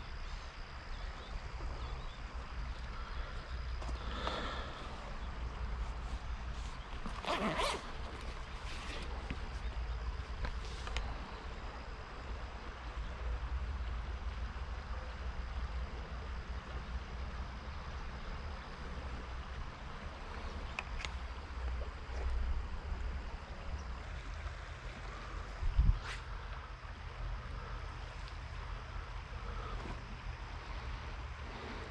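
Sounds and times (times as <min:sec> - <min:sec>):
small rasps and clicks: 0:06.5 - 0:11.1, 0:20.4 - 0:22.5
zipper pulled open: 0:07.0 - 0:09.2.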